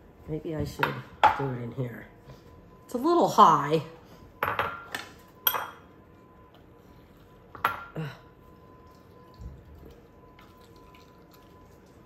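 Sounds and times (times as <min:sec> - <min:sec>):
juice dripping into bowl: 0:06.0 - 0:12.0.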